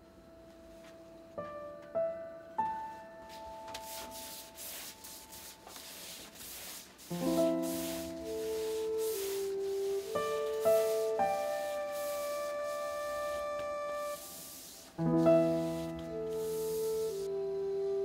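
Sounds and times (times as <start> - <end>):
soft piano music: 0.0 - 18.0
brush swishing over wet paper: 3.3 - 17.3.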